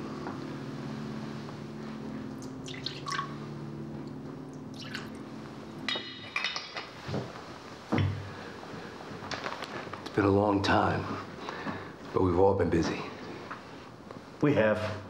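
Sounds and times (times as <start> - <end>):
liquor pouring and splashing: 2.3 - 3.4, 4.7 - 5.2
glass clinking on glass: 5.9 - 7.0.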